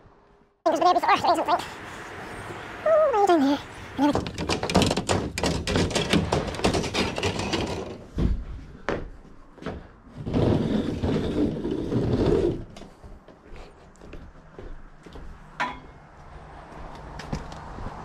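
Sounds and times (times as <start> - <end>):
ceiling tile rattling in grid: 4.1 - 8.4.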